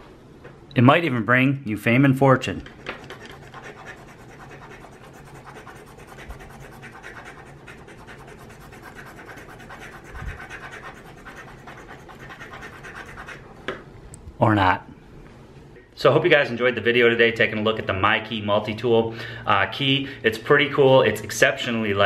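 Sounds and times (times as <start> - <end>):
metal scratching paper ticket: 2.6 - 13.4.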